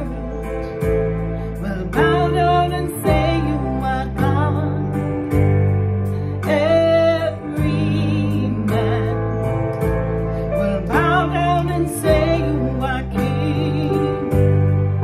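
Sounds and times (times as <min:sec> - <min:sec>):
sustained instrumental chords: 0:00.0 - 0:15.0
woman singing with vibrato: 0:01.6 - 0:05.3, 0:06.4 - 0:09.5, 0:10.6 - 0:14.6.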